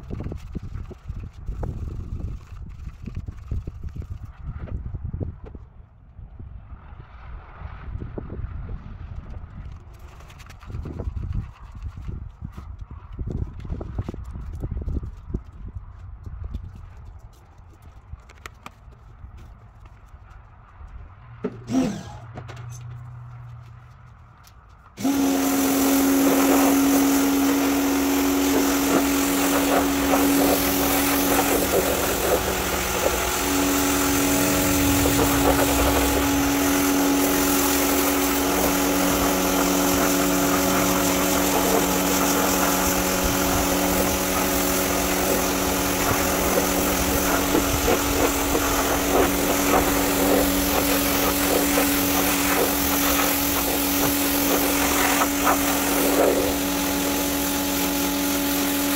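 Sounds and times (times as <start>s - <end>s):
pressure washer motor hum: 25.0s - 58.9s
water jet hissing on carpet: 25.0s - 58.9s.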